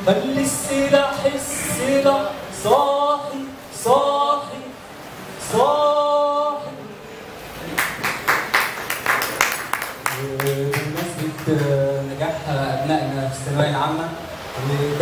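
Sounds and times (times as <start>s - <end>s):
hand-clapping: 7.7s - 11.8s.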